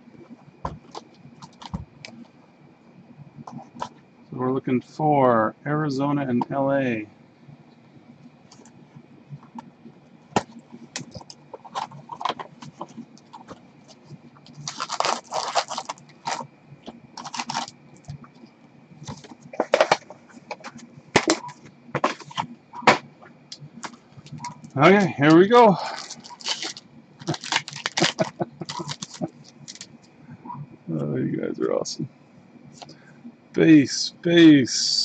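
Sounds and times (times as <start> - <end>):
cards crinkling and clicking: 0.8 - 2.2, 10.4 - 18.3, 25.4 - 30.0
card packs tearing: 10.4 - 16.5, 17.2 - 17.8, 25.4 - 29.9.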